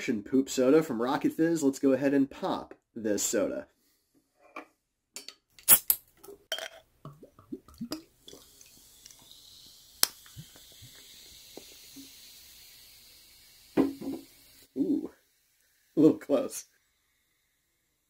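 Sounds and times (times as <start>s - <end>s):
bottle cap clicks: 5.6s - 6.0s, 10.0s - 11.7s
soda fizzing as poured: 7.1s - 18.0s.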